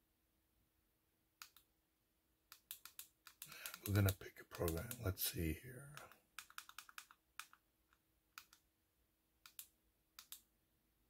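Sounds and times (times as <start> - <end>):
small push-buttons clicking: 2.5 - 5.1, 9.4 - 10.4.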